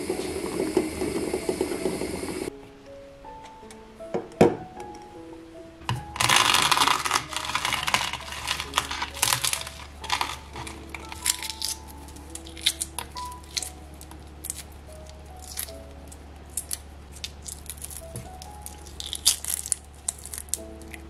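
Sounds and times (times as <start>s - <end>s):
eggshell crackling: 5.9s - 21.0s
shell cracking while peeled: 6.0s - 21.0s.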